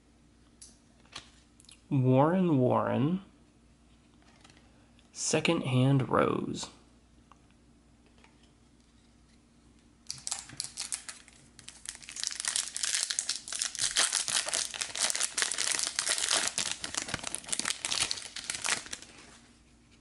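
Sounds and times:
foil wrapper tearing and crinkling: 10.1s - 19.3s.

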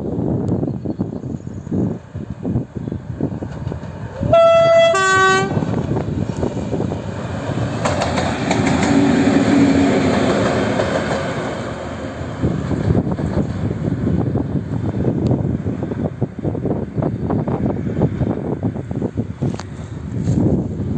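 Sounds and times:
diesel locomotive engine: 0.0s - 20.9s
two-tone locomotive horn: 4.2s - 5.7s
wheels clattering over rail joints: 5.7s - 13.8s.

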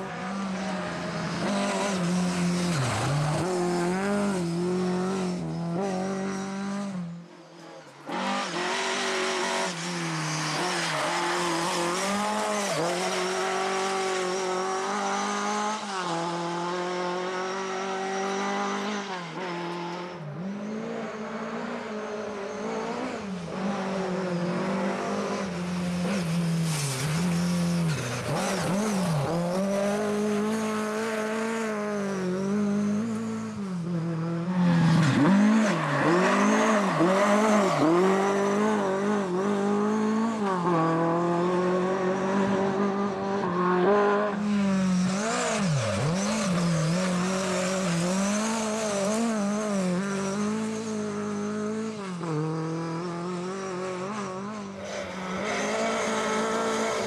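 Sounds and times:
rally car engines revving: 0.0s - 57.0s.

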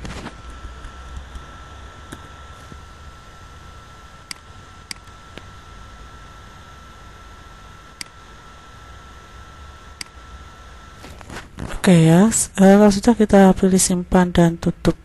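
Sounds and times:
background hiss and low hum: 0.0s - 15.0s
faint high whine: 0.0s - 15.0s.

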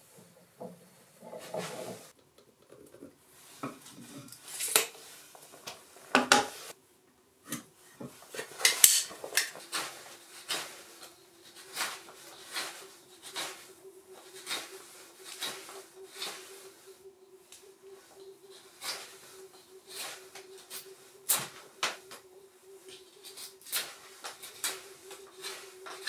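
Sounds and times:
faint steady hum: 0.0s - 26.0s
hand tools scraping wood: 7.5s - 22.2s, 22.9s - 26.0s.

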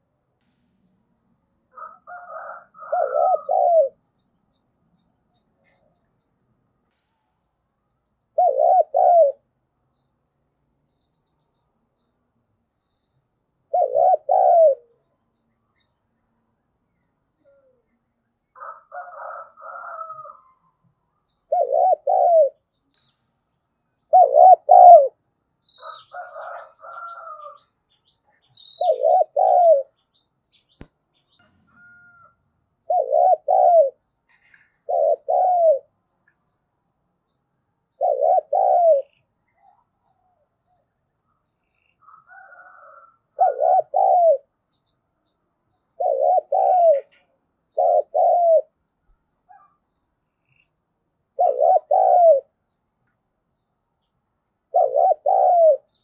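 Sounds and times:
faint higher bird calls: 1.7s - 10.2s, 10.9s - 36.6s, 37.2s - 56.0s
dove cooing: 1.8s - 4.0s, 8.4s - 9.5s, 13.7s - 15.1s, 21.5s - 22.6s, 24.1s - 25.2s, 25.8s - 27.6s, 28.6s - 30.0s, 32.8s - 35.9s, 38.0s - 39.2s, 42.1s - 44.5s, 46.0s - 48.8s, 51.4s - 52.5s, 54.7s - 56.0s.

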